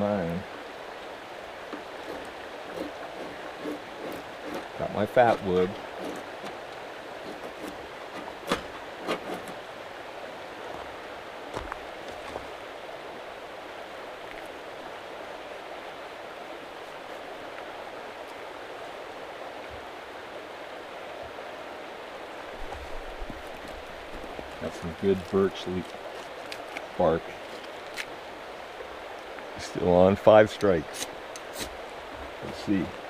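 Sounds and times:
creek water flowing: 0.0 - 33.0
wood knocks and clicks: 7.2 - 9.6.

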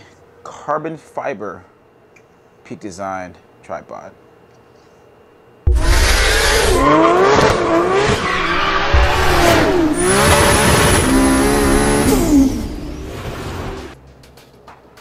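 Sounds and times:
high steady whine: 5.5 - 14.0
car engines revving: 5.7 - 14.0.

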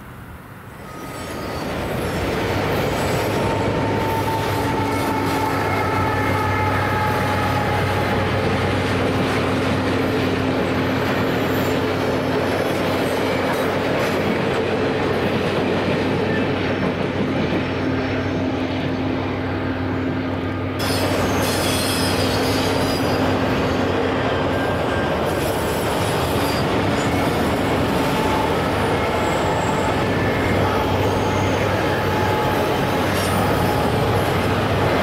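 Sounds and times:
freight train wheels rumbling: 0.0 - 35.0
wheel squeal: 0.8 - 7.6, 20.8 - 34.3.

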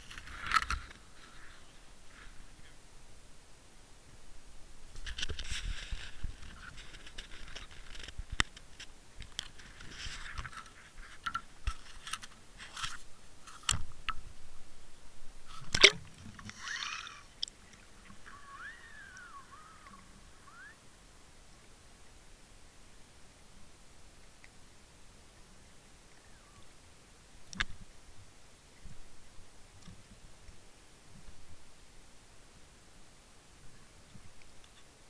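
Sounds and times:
faint squeaky glides: 15.5 - 21.0
water hiss: 15.5 - 21.0.

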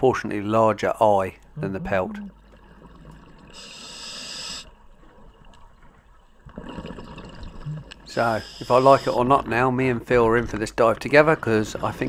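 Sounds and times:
regulator inhale hiss: 3.6 - 4.7, 8.3 - 9.2
burbling exhale of bubbles: 6.4 - 9.2.

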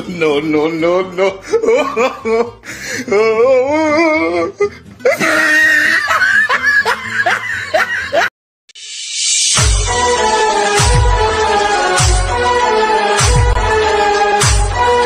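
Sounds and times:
rhythmic laughing: 0.3 - 8.3
electronic music with heavy bass: 8.8 - 15.0
music with wailing voice: 9.6 - 15.0.

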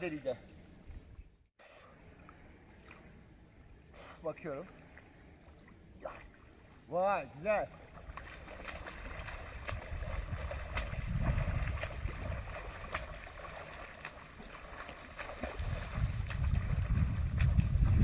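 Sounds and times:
water splashing and lapping: 1.6 - 18.0
low rumble on microphone: 9.0 - 13.2, 15.4 - 18.0.

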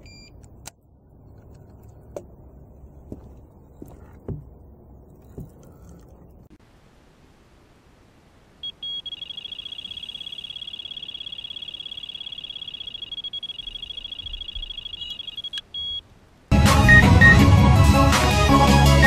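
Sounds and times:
bite alarm beeping: 8.6 - 16.0, 16.8 - 17.4.

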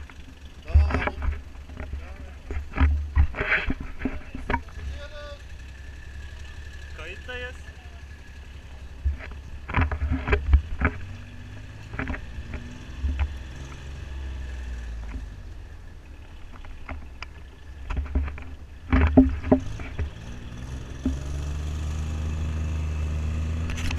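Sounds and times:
bike rattling and knocking: 0.0 - 4.9, 8.8 - 11.2, 11.8 - 13.7, 16.2 - 20.3.

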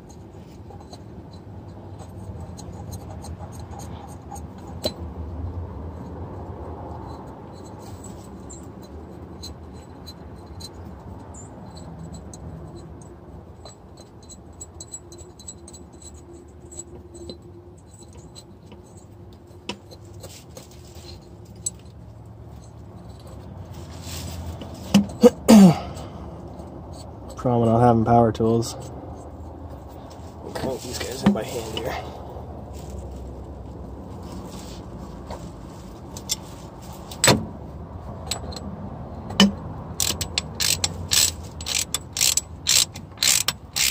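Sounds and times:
metallic tool clicks and scrapes: 0.0 - 5.1, 39.3 - 43.9.

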